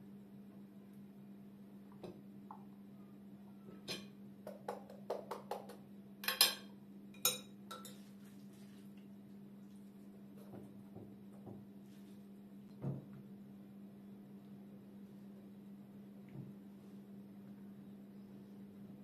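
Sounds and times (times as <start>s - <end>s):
steady low hum: 5.7s - 19.0s
spoon clinking against glass bowl: 6.2s - 8.0s.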